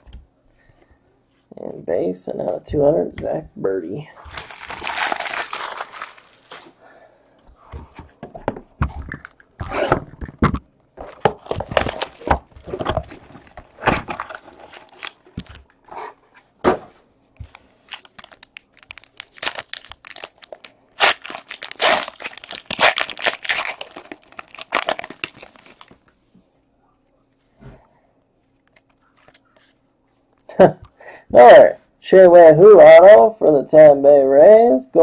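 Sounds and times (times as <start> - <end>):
cardboard box and packs rustling: 4.2 - 6.8, 7.8 - 16.2, 17.4 - 26.0
foil wrapper tearing and crinkling: 4.3 - 6.7, 11.0 - 15.6, 17.8 - 26.1.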